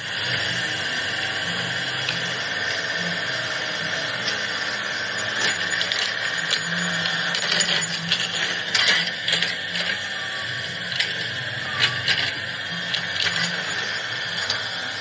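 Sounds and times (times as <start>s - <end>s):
toy motors whirring: 0.0s - 15.0s
gear clicks: 5.2s - 14.8s.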